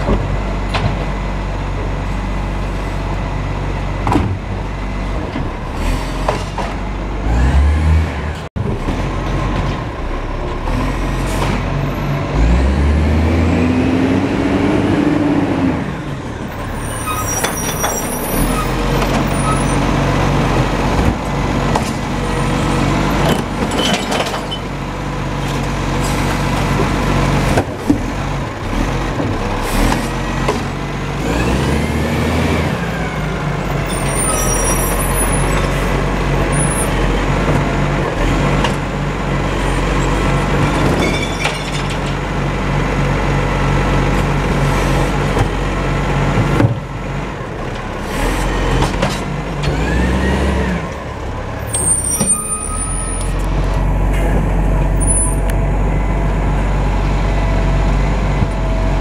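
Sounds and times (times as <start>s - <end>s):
garbage truck diesel engine revving: 0.1s - 41.0s, 41.9s - 59.0s
clunks of bins and hydraulic arm: 4.0s - 4.5s, 5.2s - 6.9s, 16.7s - 19.8s, 23.2s - 24.8s, 47.7s - 50.6s, 51.6s - 55.5s.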